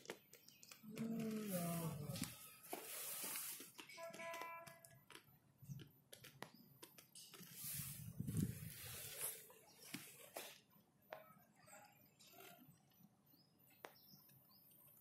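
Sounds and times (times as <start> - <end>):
faint voices: 0.8 - 2.6.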